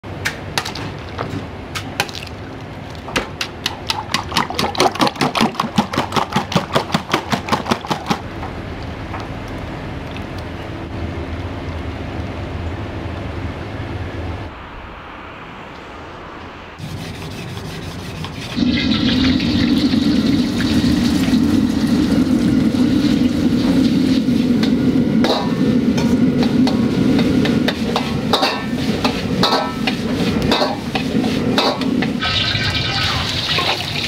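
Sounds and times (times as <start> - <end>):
wok burner and frying rushing: 0.1 - 9.2, 16.5 - 34.0
metal ladle striking wok: 24.6 - 32.2.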